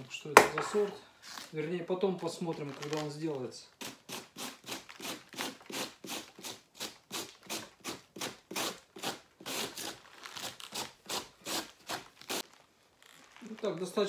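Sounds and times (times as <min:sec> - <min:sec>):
cabbage shredder slicing cabbage: 0:03.8 - 0:12.4.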